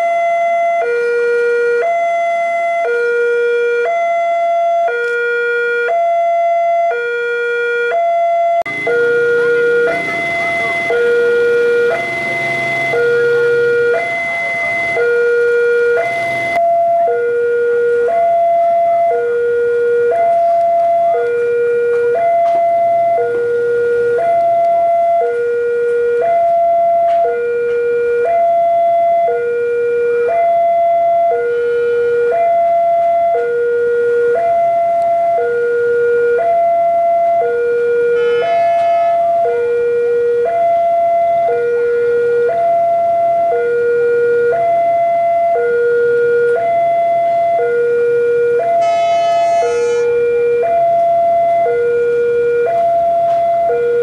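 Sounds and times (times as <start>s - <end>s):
level crossing two-tone alarm: 0.0s - 54.0s
diesel locomotive rumble: 8.7s - 29.9s
short high-pitched sounds: 48.8s - 50.2s.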